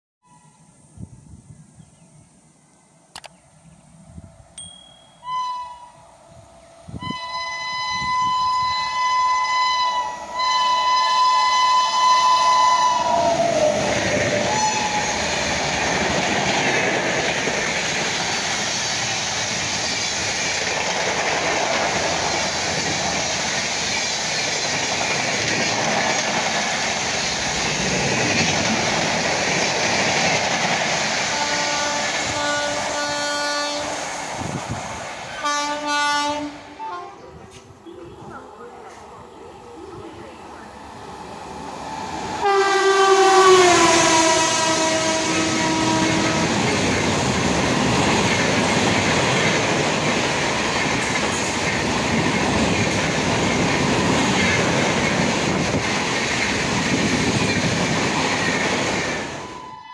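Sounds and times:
train coaches rushing past: 0:04.6 - 0:59.9
locomotive air horn: 0:05.2 - 0:13.8, 0:14.4 - 0:15.2, 0:31.3 - 0:34.0, 0:35.4 - 0:37.2, 0:42.4 - 0:46.7.

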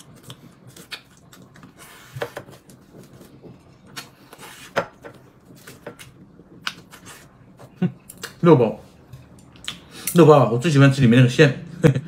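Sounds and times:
light eating clicks and taps: 0:09.1 - 0:10.2.

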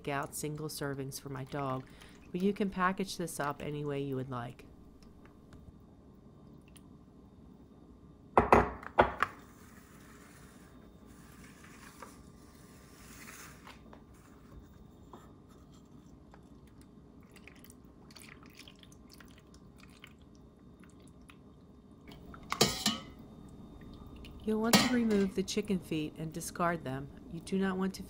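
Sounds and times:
glass knocking on countertop: 0:08.4 - 0:09.3.

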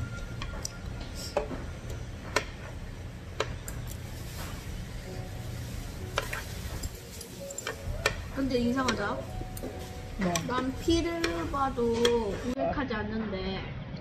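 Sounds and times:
steady low hum: 0:00.0 - 0:12.6
metal utensils clicking on skillet: 0:06.1 - 0:12.4.

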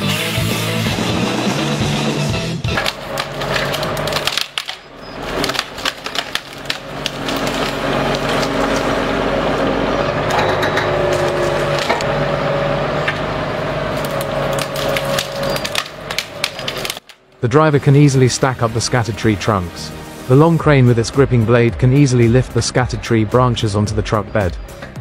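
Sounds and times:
hydraulic whine: 0:00.0 - 0:17.0
diesel engine running: 0:00.0 - 0:25.0
branches cracking and snapping: 0:02.7 - 0:09.2, 0:11.0 - 0:12.1, 0:13.9 - 0:17.4.

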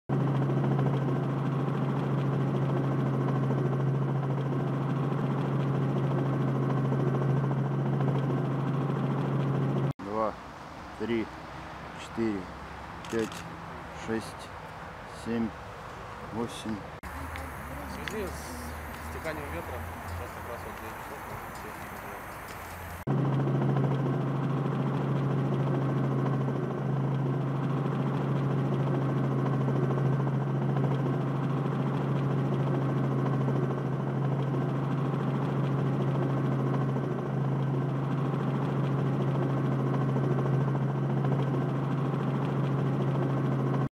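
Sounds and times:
drone propellers whirring: 0:16.2 - 0:33.8.

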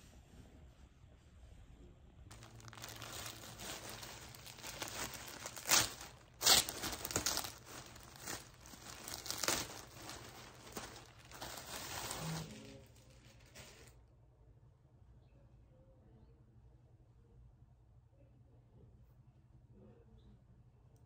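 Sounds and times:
packaging crinkling and tearing: 0:02.3 - 0:14.0.

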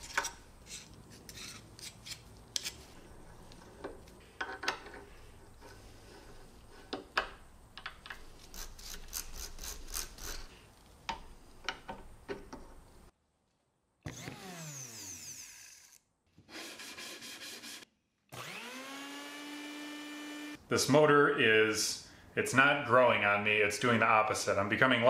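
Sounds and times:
metal gears clicking and scraping: 0:08.4 - 0:10.5
motor whir falling in pitch: 0:14.1 - 0:16.0, 0:18.3 - 0:20.6.

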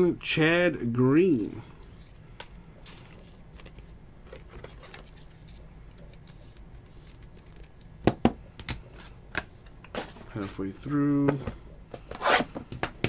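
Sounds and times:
cards being handled: 0:01.3 - 0:08.0.

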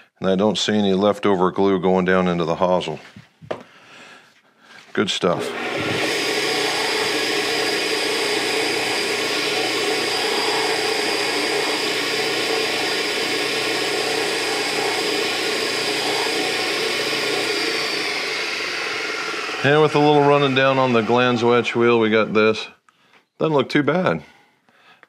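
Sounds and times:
metal buffed on wheel: 0:05.4 - 0:22.4
bench buffer whirring: 0:05.4 - 0:22.6.

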